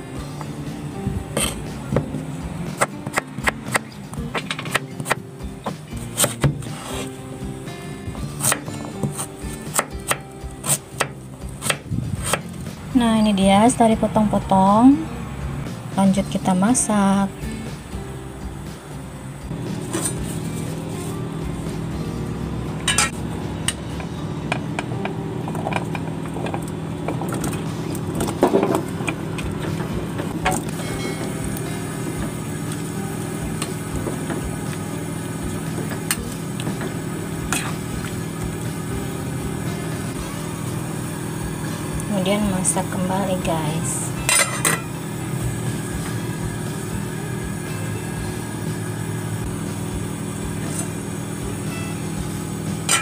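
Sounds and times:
soft background music: 0:00.0 - 0:53.0
knife chopping on wooden board: 0:02.8 - 0:07.1, 0:08.4 - 0:12.5
water boiling in a pot: 0:24.3 - 0:43.9.

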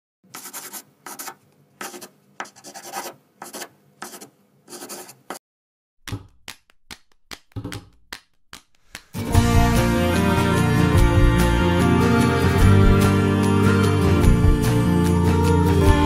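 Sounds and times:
eraser scraping paper: 0:00.3 - 0:05.4
pencil scratching on paper: 0:00.3 - 0:05.4.

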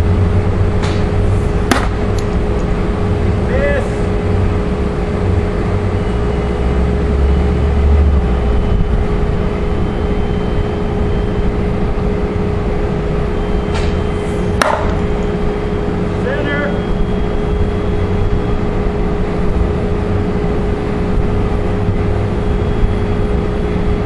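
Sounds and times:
paintball rifle shot: 0:01.7 - 0:02.0, 0:14.6 - 0:15.0.

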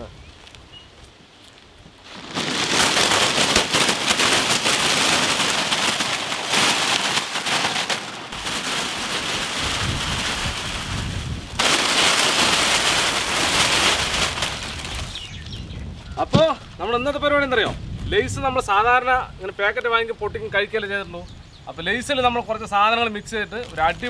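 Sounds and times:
plastic packets crinkling and rustling: 0:01.4 - 0:15.6.

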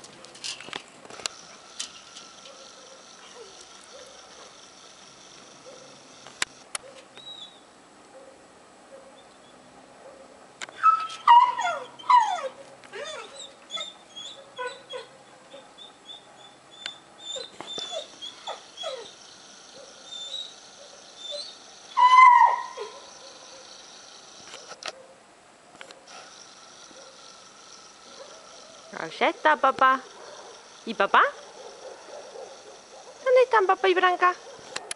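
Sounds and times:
dog yelping and whining: 0:02.4 - 0:04.5, 0:07.2 - 0:07.6, 0:10.7 - 0:23.6
dog crying loudly: 0:10.8 - 0:19.2, 0:19.8 - 0:20.6, 0:21.2 - 0:23.6.

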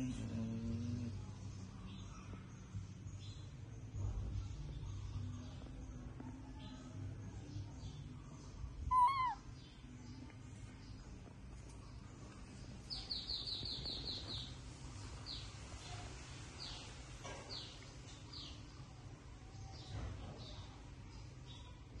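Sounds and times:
baby monkey whimpering: 0:08.9 - 0:09.4
bird high falling chirps: 0:08.9 - 0:09.4.

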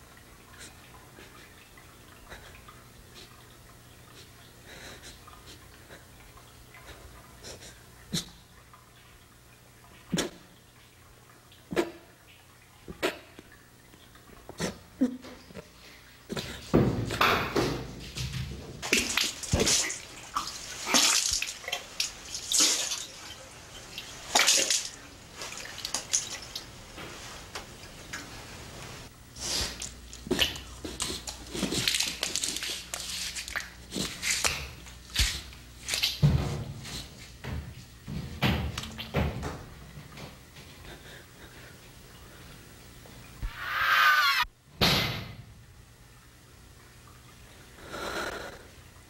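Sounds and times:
water dripping: 0:00.0 - 0:28.3, 0:29.8 - 0:36.3.

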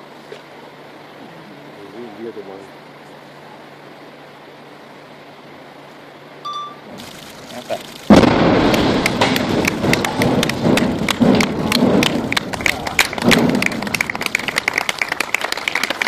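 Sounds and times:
blast rumble: 0:06.9 - 0:14.9
crowd clapping: 0:08.6 - 0:16.0.

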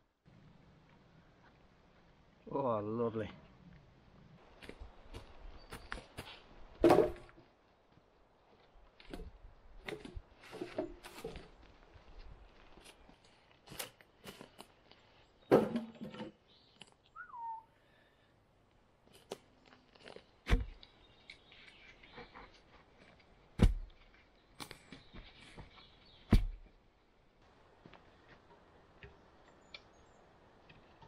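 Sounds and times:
wooden post thumping into hole: 0:06.8 - 0:07.3, 0:15.5 - 0:16.4, 0:26.3 - 0:26.6
wooden logs knocking together: 0:06.8 - 0:07.5, 0:09.0 - 0:11.6, 0:15.5 - 0:16.4, 0:20.0 - 0:20.9, 0:23.6 - 0:25.0, 0:26.3 - 0:26.7
bird falling call: 0:17.1 - 0:17.7.

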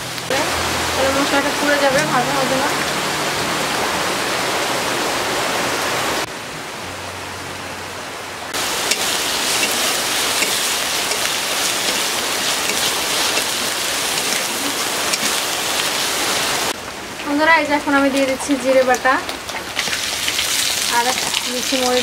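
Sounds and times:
low hum: 0:00.0 - 0:14.6
paste sizzling in oil: 0:08.6 - 0:16.7, 0:19.5 - 0:22.0.

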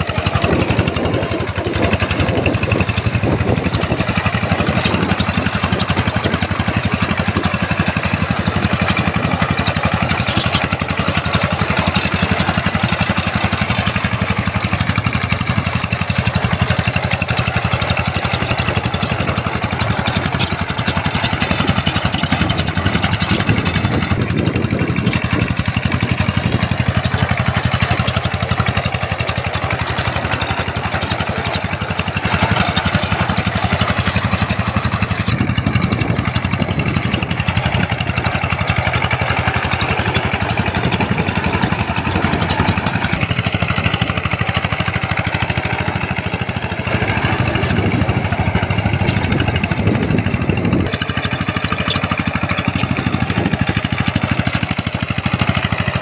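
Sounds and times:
diesel engine running under load: 0:00.0 - 0:56.0
tines churning wet mud: 0:00.0 - 0:56.0.

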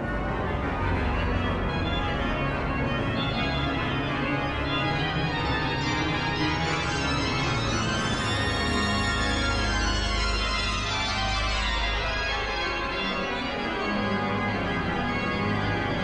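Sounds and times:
deep sustained organ bass notes: 0:00.0 - 0:16.0
pipe organ playing fast runs: 0:00.0 - 0:16.0.

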